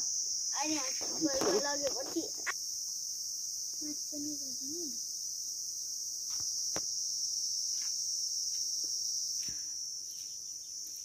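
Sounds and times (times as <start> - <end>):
insects chirring: 0.0 - 11.0.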